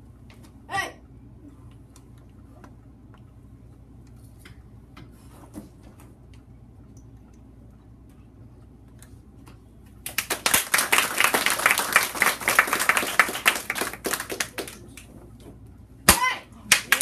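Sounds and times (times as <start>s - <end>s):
small audience applauding: 10.0s - 15.1s, 16.7s - 17.0s.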